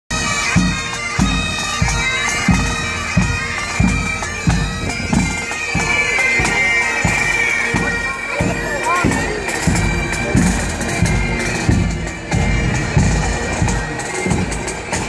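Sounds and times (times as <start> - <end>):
bagpipes playing a tune: 0.1 - 15.0.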